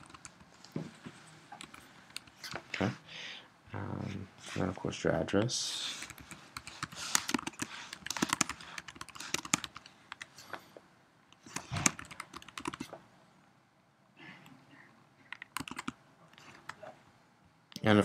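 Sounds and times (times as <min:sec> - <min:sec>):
typing on computer keyboard: 0:00.0 - 0:00.4, 0:06.0 - 0:10.3, 0:11.4 - 0:12.9, 0:15.3 - 0:16.8.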